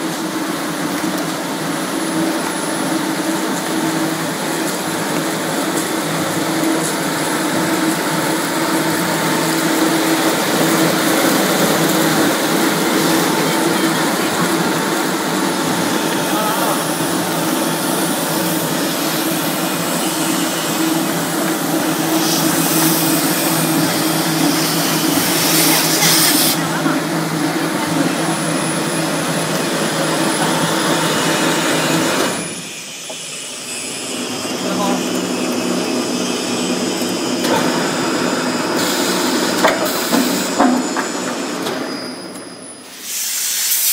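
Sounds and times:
mechanical hiss: 42.8s - 43.9s.

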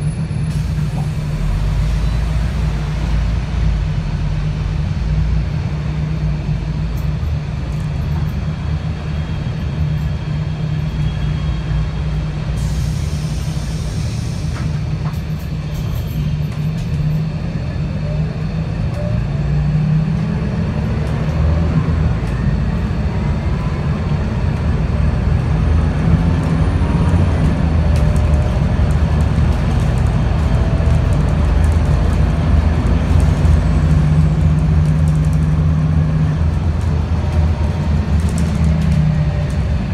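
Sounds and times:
bus engine droning: 0.0s - 39.9s
air hiss: 12.6s - 14.8s.

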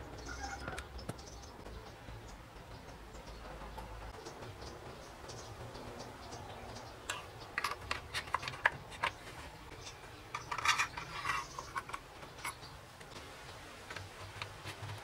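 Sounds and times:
small metal parts clicking: 7.1s - 9.2s, 10.3s - 12.7s
metal scraping: 7.1s - 12.7s.

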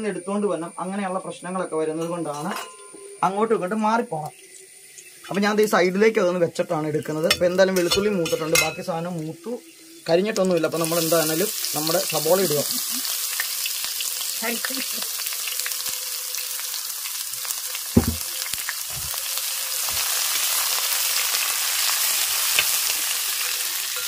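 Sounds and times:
onions sizzling in oil: 2.2s - 24.0s
sharp knock: 18.0s - 18.2s.

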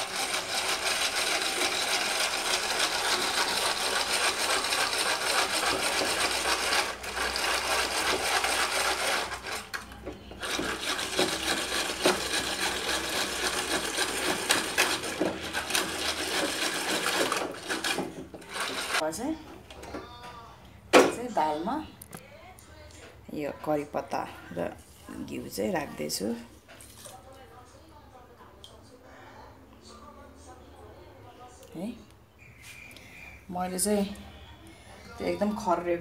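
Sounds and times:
whisk scraping lentils in pot: 0.0s - 19.0s.

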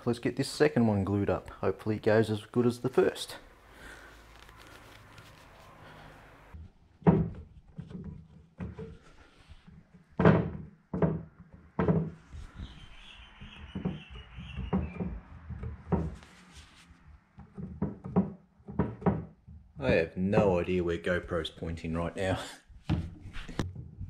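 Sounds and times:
wooden parts knocking: 7.0s - 16.3s, 17.3s - 20.6s.

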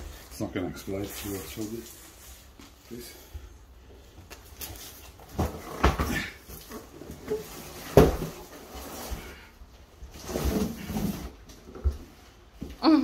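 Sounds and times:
cardboard box thumping on wooden floor: 7.9s - 8.4s.

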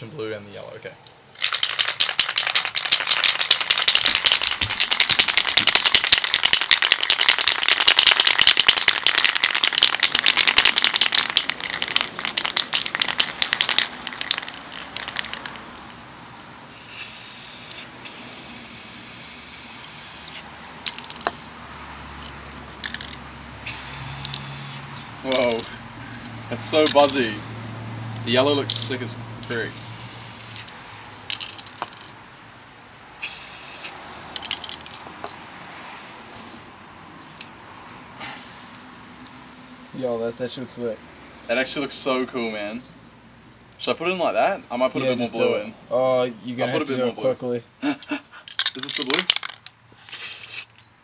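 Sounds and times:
spray paint hissing: 1.4s - 15.6s, 16.6s - 21.5s, 22.2s - 24.9s, 29.4s - 32.1s, 33.2s - 35.1s, 49.9s - 50.8s
spray can mixing balls rattling: 1.4s - 15.7s, 16.7s - 21.6s, 22.2s - 25.7s, 29.4s - 30.7s, 31.3s - 32.2s, 33.2s - 35.4s, 48.6s - 50.9s.

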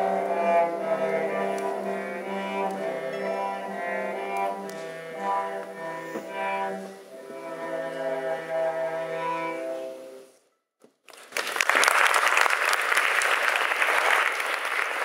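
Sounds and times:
cello notes: 0.0s - 10.4s
audience applause: 11.1s - 15.0s.

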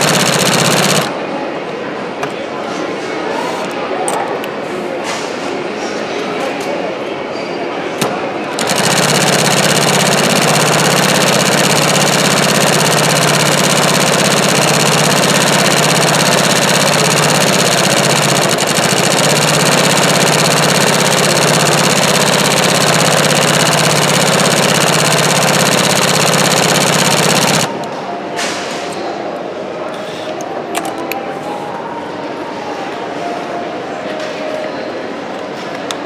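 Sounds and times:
industrial sewing machine running: 0.0s - 1.2s, 8.5s - 28.0s.

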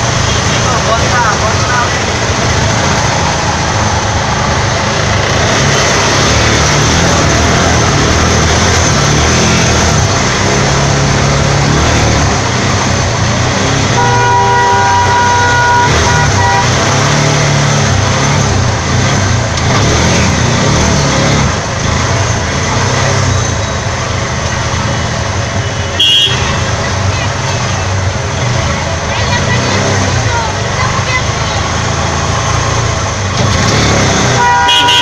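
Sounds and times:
engine drone: 0.0s - 35.0s
vehicle horn: 13.9s - 17.2s, 25.8s - 26.7s, 34.2s - 35.0s.

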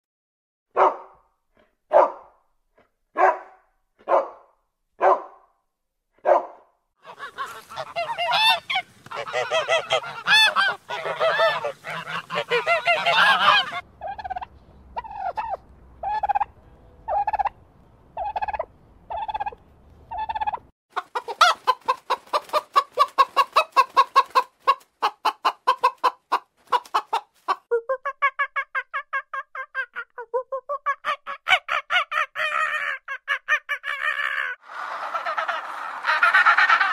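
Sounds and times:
dog barking: 0.7s - 1.2s, 1.9s - 2.3s, 3.2s - 5.5s, 6.2s - 6.7s
poultry calling: 7.0s - 17.5s
turkey calling: 7.0s - 17.6s, 18.2s - 24.8s, 31.0s - 36.9s.

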